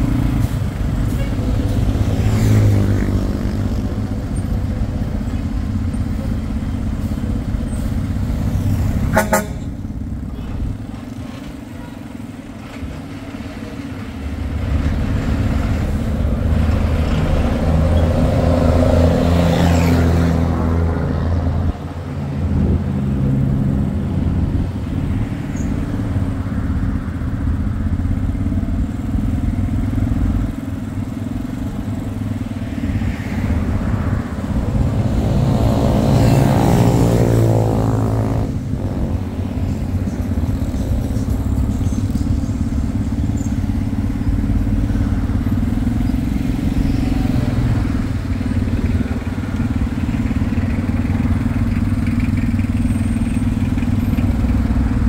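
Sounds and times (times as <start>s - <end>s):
vehicle engines running: 0.0s - 55.0s
short horn toot: 9.1s - 9.7s.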